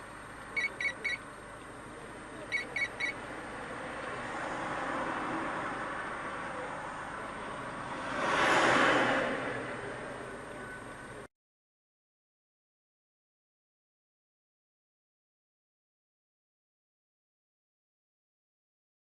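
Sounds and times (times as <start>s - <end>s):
street traffic noise: 0.0s - 11.3s
short high electronic beeps: 0.6s - 1.2s, 2.5s - 3.2s
vehicle passing close: 2.0s - 11.3s.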